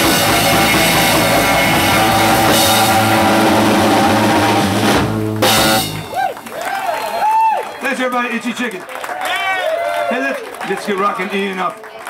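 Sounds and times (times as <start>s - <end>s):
live rock band playing: 0.0s - 6.5s.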